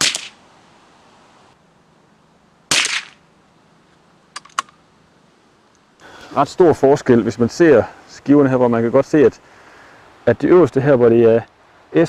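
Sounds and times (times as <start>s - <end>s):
suppressed rifle shot: 0.0s - 0.4s, 2.7s - 3.2s.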